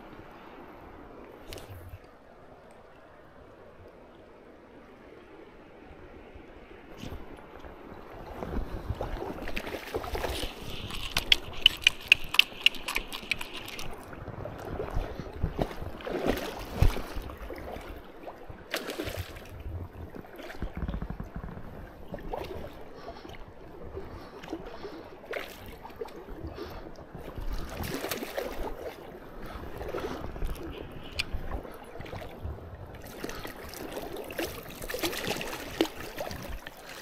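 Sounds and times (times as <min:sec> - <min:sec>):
water sloshing and splashing: 0:07.0 - 0:37.0.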